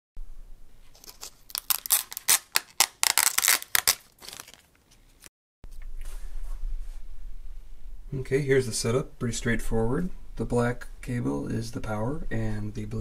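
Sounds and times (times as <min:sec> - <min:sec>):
plastic film crinkling as peeled: 0:00.9 - 0:04.8.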